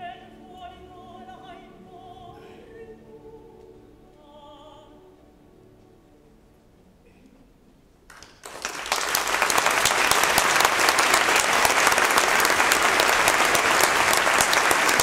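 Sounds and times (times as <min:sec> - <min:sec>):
audience applauding: 0:08.1 - 0:15.0.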